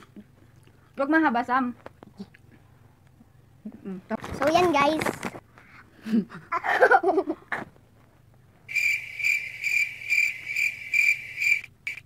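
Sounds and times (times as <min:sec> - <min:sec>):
cricket chirping: 0:08.7 - 0:12.0.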